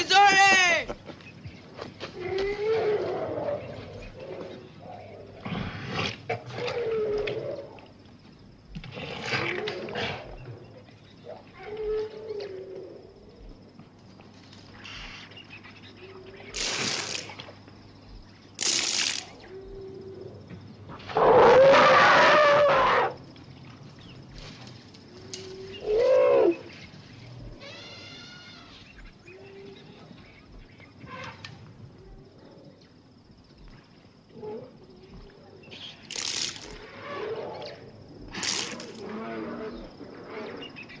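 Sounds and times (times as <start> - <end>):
elephant trumpeting: 21.2 - 23.2.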